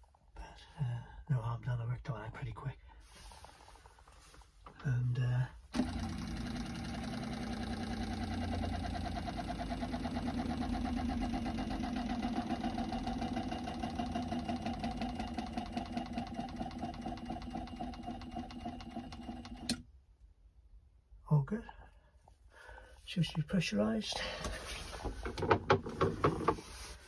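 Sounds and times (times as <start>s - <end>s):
water pump pulsing buzz: 5.7s - 19.8s.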